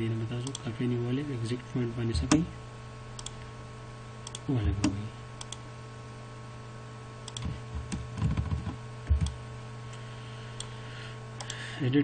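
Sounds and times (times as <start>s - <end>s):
low electrical hum: 0.0s - 12.0s
keystroke thumps: 7.3s - 9.4s.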